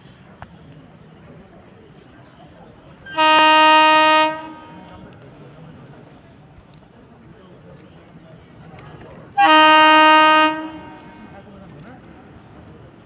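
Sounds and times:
train horn blast: 3.1 - 5.0, 9.4 - 11.2.

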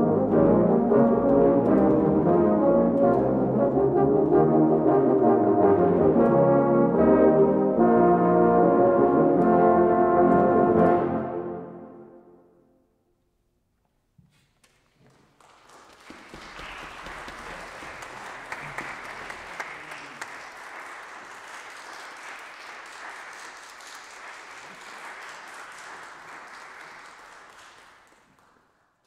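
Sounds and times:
audience applauding: 15.0 - 29.0.

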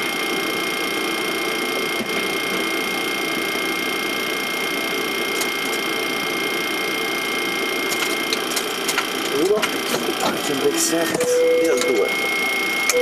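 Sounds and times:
airliner engines humming: 0.0 - 13.0
high whining tones: 9.0 - 13.0.

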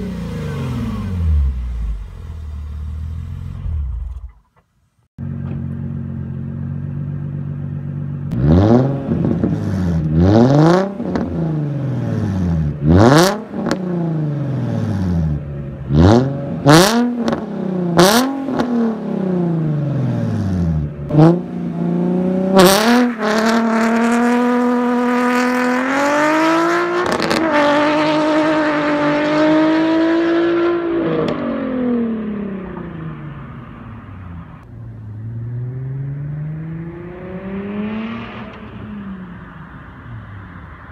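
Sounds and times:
car engine revving: 0.0 - 4.6, 5.2 - 40.9
car accelerating away: 8.3 - 39.9.

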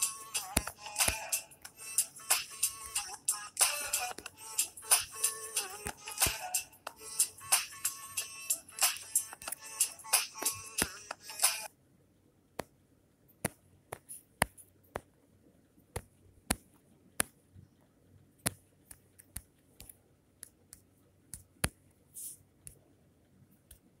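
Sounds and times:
song: 0.0 - 11.7
fingertip taps on touchscreen: 13.4 - 15.2, 15.9 - 17.4.

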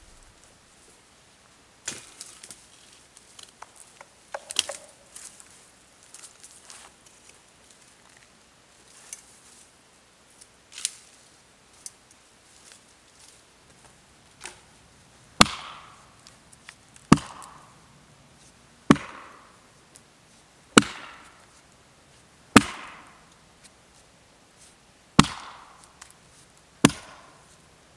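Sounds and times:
dry brush snapping and rustling: 1.8 - 8.3, 10.3 - 14.8
axe chopping branches: 4.3 - 5.0, 15.4 - 16.0, 17.1 - 17.6, 18.9 - 19.4, 20.8 - 21.4, 22.5 - 23.2, 25.2 - 26.1, 26.8 - 27.4.

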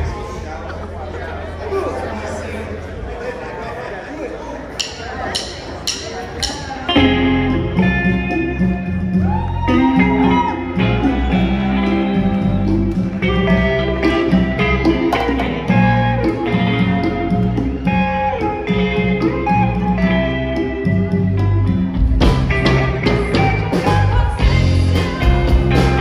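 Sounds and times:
live band guitar music: 4.7 - 26.0
bass line: 5.3 - 26.0.

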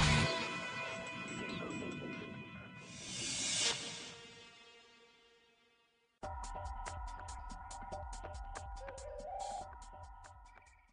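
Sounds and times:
background music with quick beat: 6.2 - 10.9.

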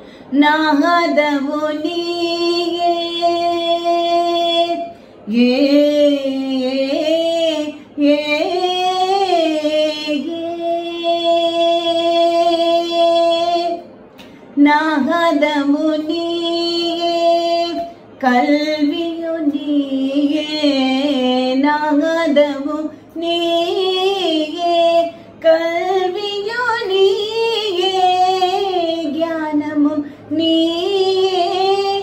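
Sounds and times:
singer breathing: 0.0 - 0.4
woman singing unaccompanied: 0.3 - 13.9, 14.6 - 32.0.

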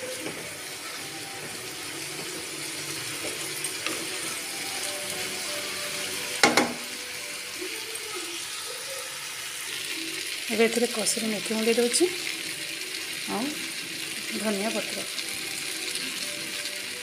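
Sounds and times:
food sizzling in a pan: 0.0 - 17.0
spatula knocking on pan: 6.4 - 6.9.

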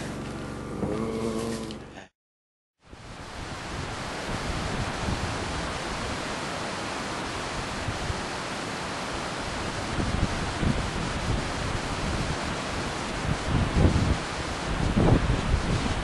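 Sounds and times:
wind buffeting microphone: 2.9 - 6.3, 9.4 - 16.0.

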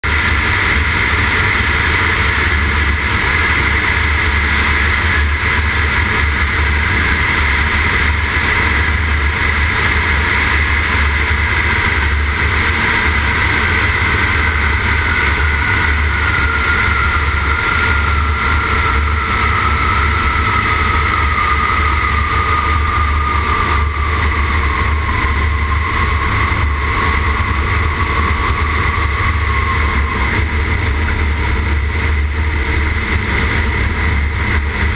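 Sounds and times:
biplane engine and propeller: 0.0 - 34.9
wind rush and buffeting: 0.0 - 34.9
whine falling in pitch: 10.4 - 34.9.

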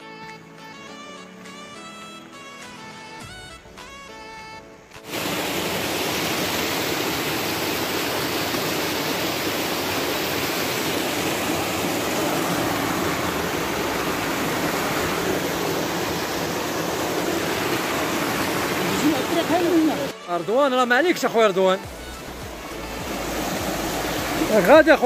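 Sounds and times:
stream rushing over stones: 5.0 - 25.0.

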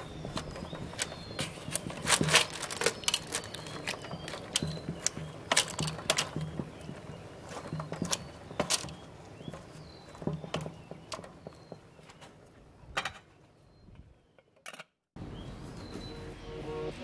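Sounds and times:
wooden spoon stirring in pot: 0.0 - 12.5
clam shells clacking in metal pot: 1.0 - 6.6.

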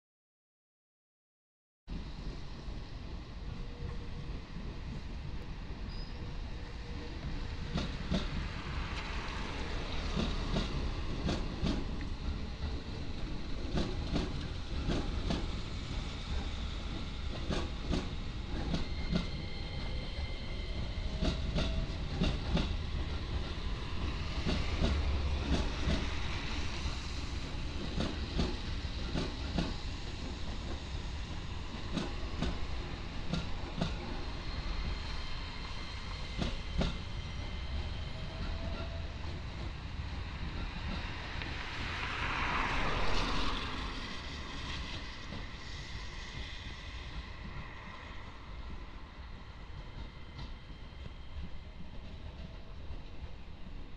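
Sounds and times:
train rumble: 1.9 - 53.9
train wheels clicking over joints: 10.0 - 15.6, 16.3 - 20.0, 20.8 - 39.8.

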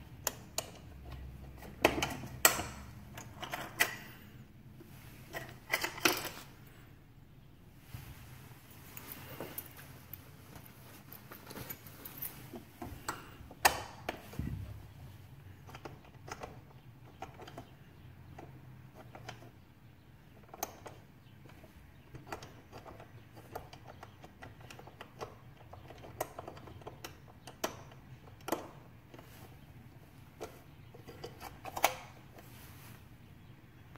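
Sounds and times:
number dials clicking: 0.0 - 4.3, 20.4 - 32.5.

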